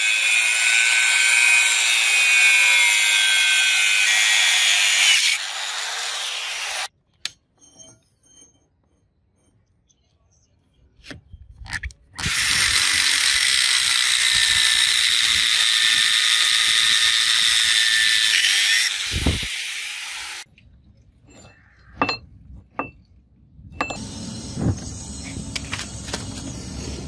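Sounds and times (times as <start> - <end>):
angle grinder cutting steel: 0.0 - 6.9, 12.2 - 20.4.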